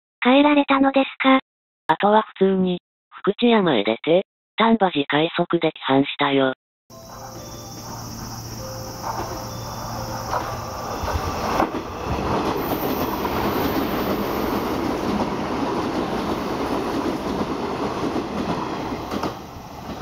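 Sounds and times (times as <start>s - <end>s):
electric train passing at speed: 6.9s - 20.0s.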